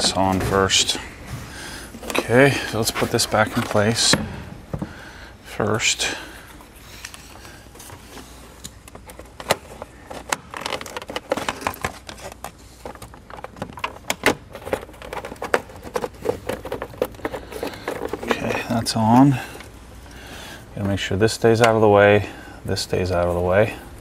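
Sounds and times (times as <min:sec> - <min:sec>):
parts clicking and rattling by hand: 0:01.9 - 0:05.0, 0:06.0 - 0:19.8.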